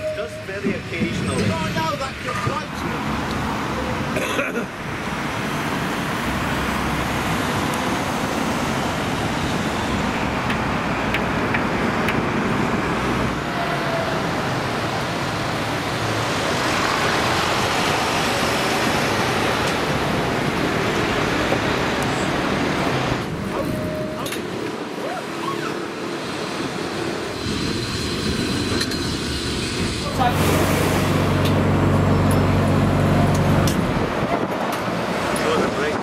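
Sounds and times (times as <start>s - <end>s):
tram running noise: 0.0s - 36.0s.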